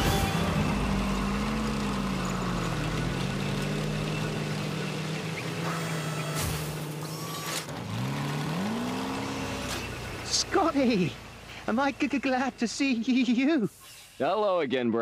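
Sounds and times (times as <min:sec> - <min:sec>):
steady layered hum: 0:00.0 - 0:03.2
rising whines: 0:00.0 - 0:10.0
short bursts of hiss: 0:13.6 - 0:14.3.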